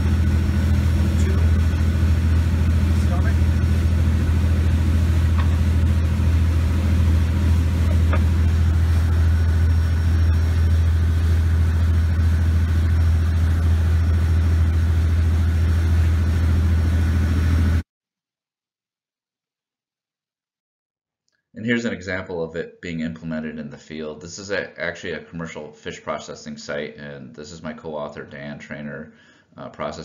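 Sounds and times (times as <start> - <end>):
ship engine droning: 0.0 - 17.8.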